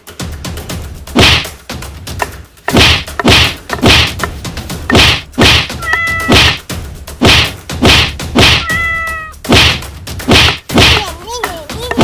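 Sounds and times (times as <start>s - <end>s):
wooden stick whacking: 1.1s - 1.6s, 2.2s - 8.8s, 9.4s - 12.0s
cat crying out: 5.8s - 6.5s, 8.6s - 9.4s.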